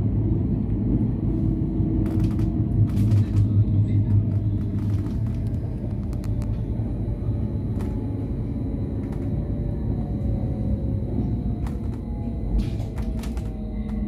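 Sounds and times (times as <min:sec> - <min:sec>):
train wheels rumbling on track: 0:00.0 - 0:14.0
scattered clicks: 0:02.0 - 0:06.6, 0:11.6 - 0:14.0.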